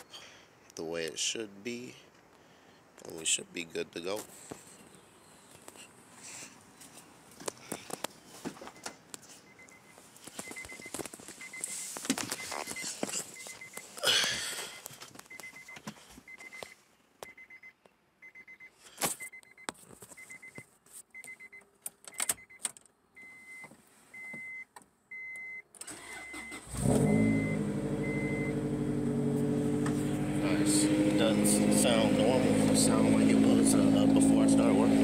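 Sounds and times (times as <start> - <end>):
car warning chime beeps: 8.7 - 13.9, 14.6 - 20.6, 21.2 - 28.7
car engine cranking: 25.7 - 35.0
car engine idling: 26.1 - 35.0.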